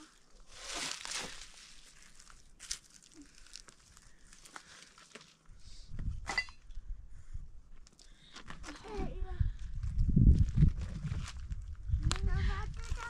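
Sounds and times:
rustling and crinkling handling: 0.0s - 5.4s, 9.8s - 13.0s.

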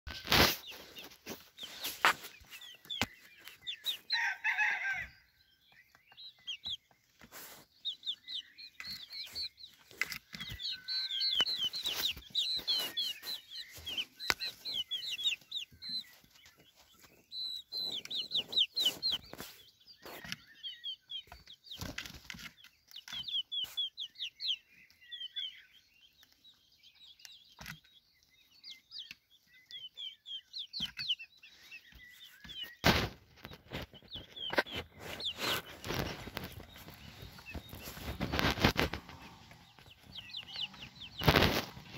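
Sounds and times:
rustles: 0.1s - 4.3s, 6.6s - 20.4s, 32.0s - 41.9s
chicks peeping: 0.1s - 41.9s.

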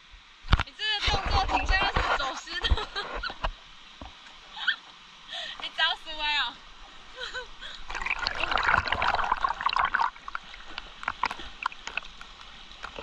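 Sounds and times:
water drips: 7.6s - 13.0s
water splashing from swimming: 7.6s - 13.0s.

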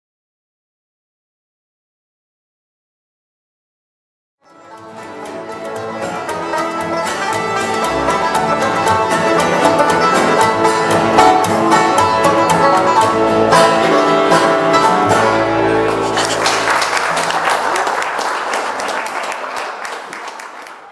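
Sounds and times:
bluegrass banjo and guitar music: 4.4s - 18.2s.

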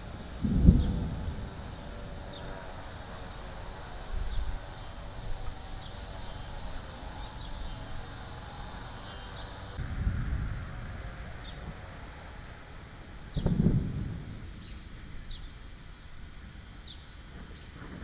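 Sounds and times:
low thunder rumbles: 0.0s - 5.3s, 9.8s - 18.0s
birds chirping: 0.0s - 9.8s, 10.8s - 16.0s, 16.8s - 17.8s
steady background hiss: 0.0s - 18.0s.

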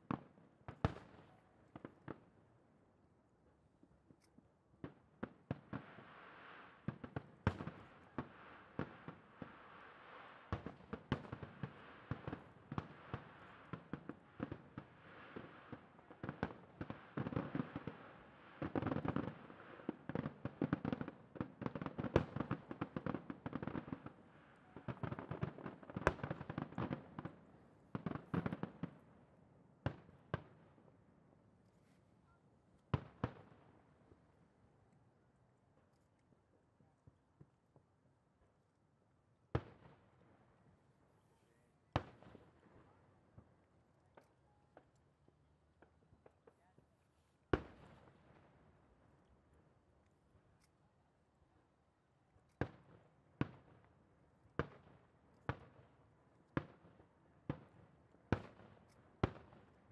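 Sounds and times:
firework bursts and bangs: 4.8s - 29.1s.

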